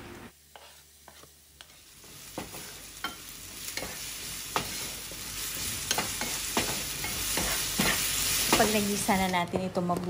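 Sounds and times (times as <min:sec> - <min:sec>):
onion sizzling in hot oil: 0:00.3 - 0:09.4
spatula scraping and tapping pan: 0:00.5 - 0:05.0, 0:05.8 - 0:08.8.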